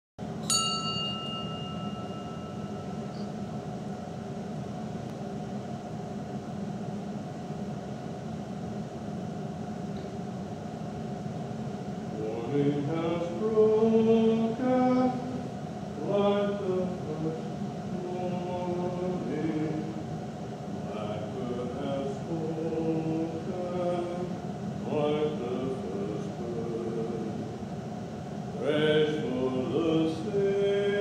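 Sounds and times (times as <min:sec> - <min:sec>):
steady drone: 0:00.2 - 0:31.0
small bell ringing: 0:00.4 - 0:03.3
chanted singing: 0:12.2 - 0:15.4, 0:20.8 - 0:27.5, 0:28.6 - 0:31.0.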